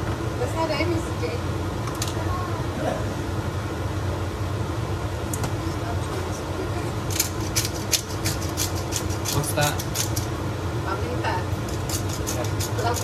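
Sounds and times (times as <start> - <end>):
steady low hum: 0.0 - 13.0
pepper grinder clicking: 7.1 - 10.3.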